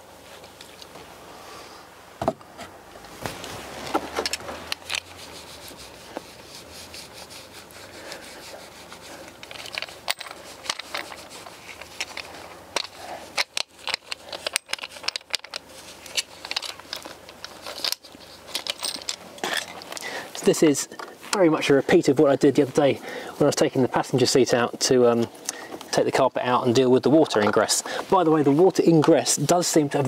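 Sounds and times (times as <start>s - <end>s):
cloth wiping seatbelt: 4.4s - 9.4s
seatbelt hardware clicking and rattling: 9.3s - 20.0s.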